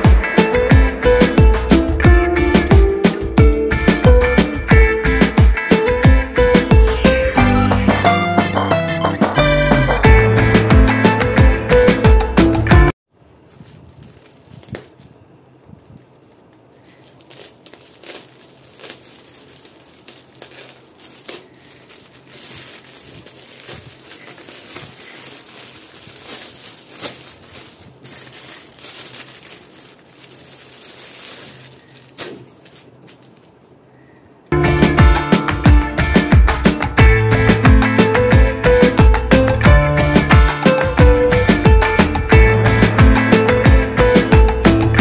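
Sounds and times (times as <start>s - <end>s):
plastic bag crinkling: 13.1s - 33.8s
cloth pulled out: 15.9s - 33.3s.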